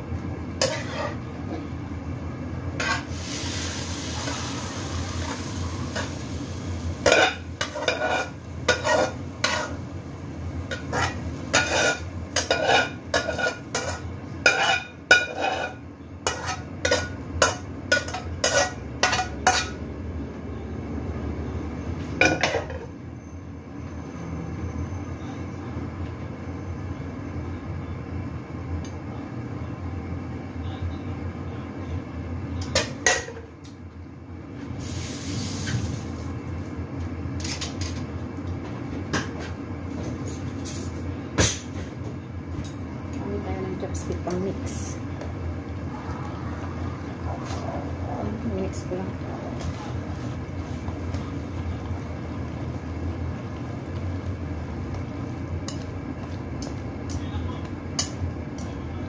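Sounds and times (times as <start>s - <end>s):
steady low hum: 0.0s - 59.0s
metal spatula scraping wok: 0.6s - 1.3s, 2.8s - 3.3s, 7.0s - 9.8s, 10.7s - 19.8s.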